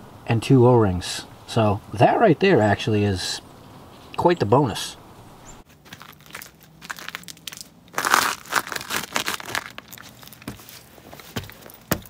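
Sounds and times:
crinkling handling noise: 5.6s - 12.0s.

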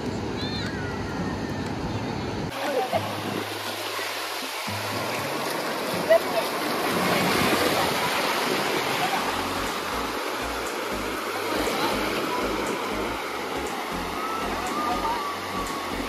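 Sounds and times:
surf washing onto beach: 2.5s - 16.0s.

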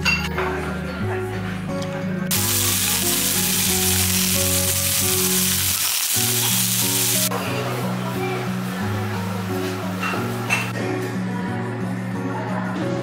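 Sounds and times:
background music: 0.0s - 13.0s
food sizzling on hot metal plate: 2.3s - 7.3s.

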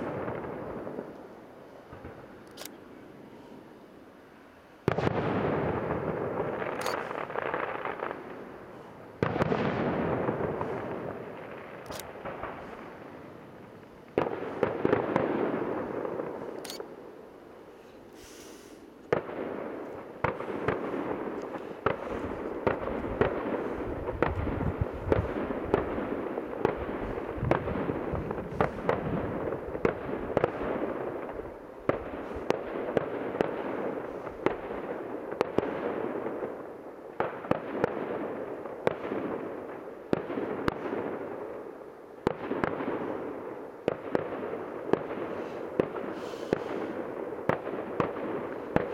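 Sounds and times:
fireworks bursting: 0.0s - 2.4s, 4.8s - 48.9s.

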